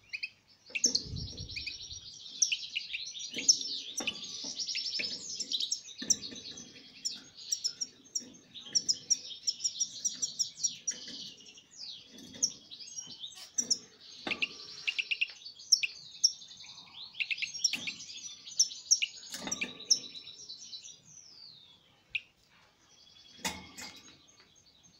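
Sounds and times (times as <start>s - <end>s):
goldfinch twittering song: 0.0s - 22.3s.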